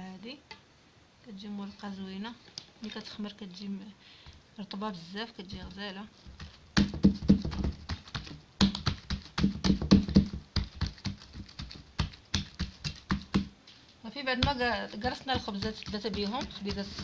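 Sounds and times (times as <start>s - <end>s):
hands patting dough in metal tray: 5.4s - 13.6s, 14.3s - 17.0s.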